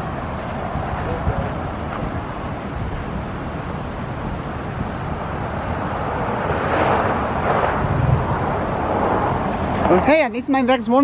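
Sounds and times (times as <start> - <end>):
river rushing roar: 0.0 - 11.0.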